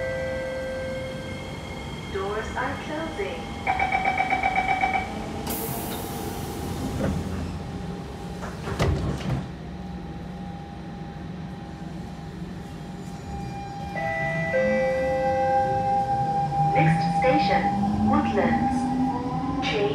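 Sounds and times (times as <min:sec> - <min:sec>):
train carriage humming and rumbling: 0:00.0 - 0:19.9
train doors closing with hiss: 0:05.4 - 0:09.6.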